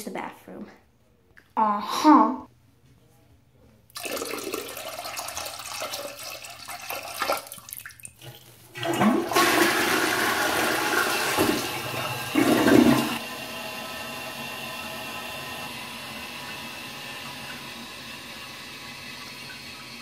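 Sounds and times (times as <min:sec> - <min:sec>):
urine splashing into toilet water: 0:03.9 - 0:13.2
toilet flushing: 0:03.9 - 0:20.0.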